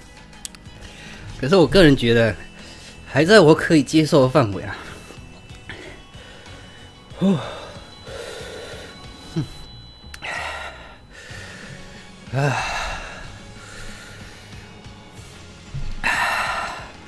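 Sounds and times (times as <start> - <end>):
man breathing hard: 0.8 - 1.4, 2.4 - 3.1, 4.9 - 17.0.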